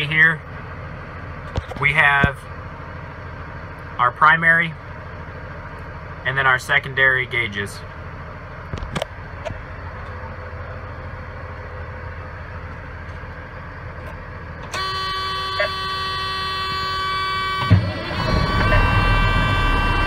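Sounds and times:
engine rumble: 0.0s - 20.0s
truck engine cranking and starting: 0.0s - 20.0s
buzzing warning tone: 14.7s - 20.0s
thump: 17.6s - 20.0s.

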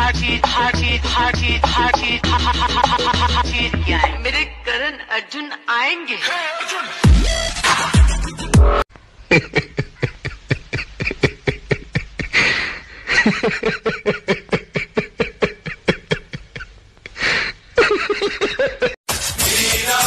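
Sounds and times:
man laughing hard: 9.3s - 19.0s.

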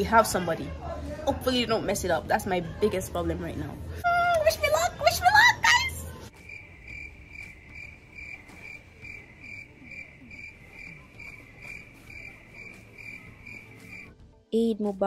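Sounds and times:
cricket chirping: 6.4s - 14.1s.

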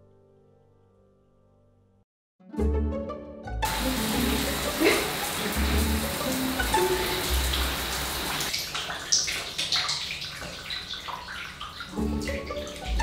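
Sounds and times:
shower water hissing and splashing: 3.6s - 13.0s
water drips: 3.7s - 13.0s.

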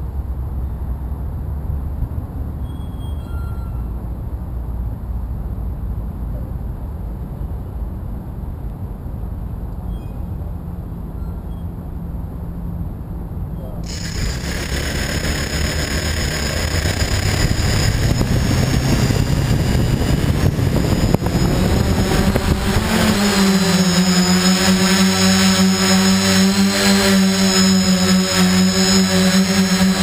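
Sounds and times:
steady hum with overtones: 11.0s - 30.0s
electric motors whining: 13.8s - 30.0s
wind buffeting microphone: 13.9s - 27.1s.

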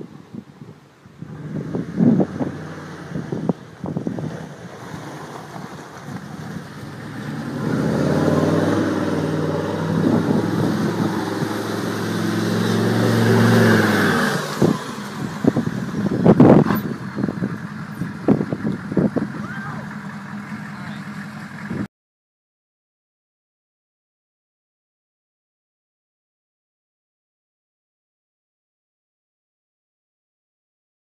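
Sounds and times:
engine revving hard: 1.2s - 21.8s.

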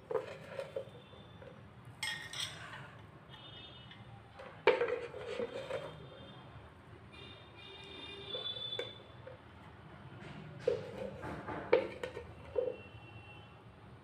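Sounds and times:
dishware knocks and clinks: 2.0s - 3.5s, 10.5s - 12.9s.

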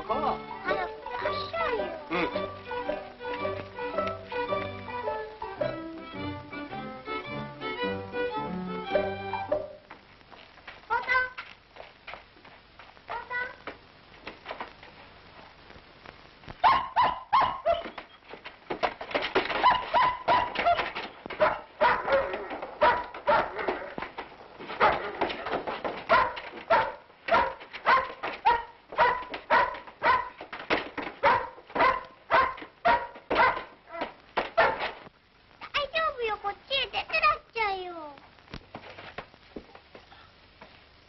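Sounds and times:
large dog barking: 16.6s - 17.9s, 19.6s - 20.8s, 21.4s - 23.9s, 24.8s - 25.3s, 26.1s - 30.4s, 31.2s - 33.7s, 34.6s - 34.9s.

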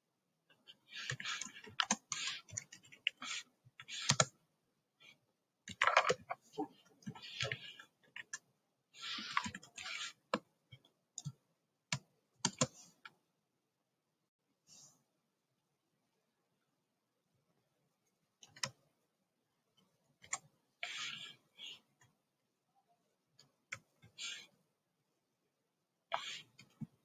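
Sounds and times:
computer keyboard typing: 0.9s - 4.3s, 5.7s - 6.4s, 11.2s - 12.8s.

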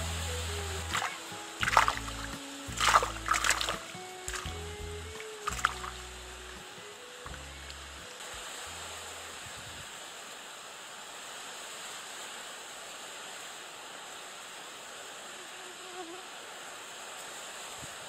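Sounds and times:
insects chirring: 0.0s - 9.1s.

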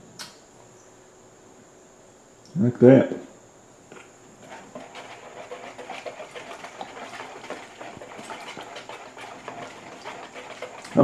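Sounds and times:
liquid swishing: 4.4s - 11.0s
whisk clicking against bowl: 4.4s - 11.0s.

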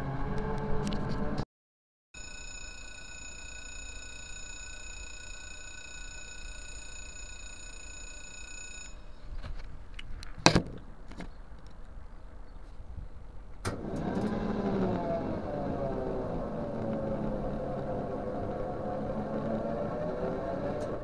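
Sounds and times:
vehicle with tones gliding down: 0.0s - 1.4s, 13.7s - 21.0s
level crossing warning tone: 2.2s - 9.2s.

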